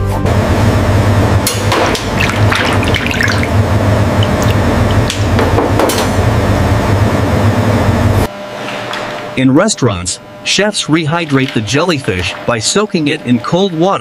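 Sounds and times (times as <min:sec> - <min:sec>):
steady low hum: 0:00.0 - 0:14.0
water sounds: 0:01.8 - 0:05.3, 0:10.6 - 0:14.0.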